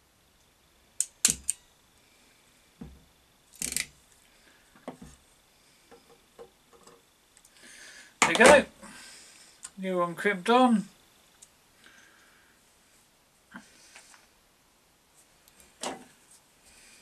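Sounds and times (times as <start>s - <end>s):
crimping pliers clicking: 1.0s - 1.6s, 3.5s - 3.9s
tool and wire handling ticks: 1.0s - 1.6s, 3.5s - 3.9s.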